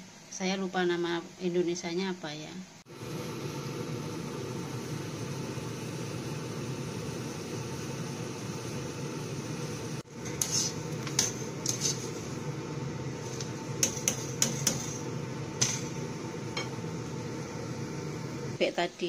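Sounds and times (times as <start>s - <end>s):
steady hiss: 2.6s - 19.0s
wire strainer clinking on metal wok: 10.2s - 12.2s, 13.2s - 16.8s.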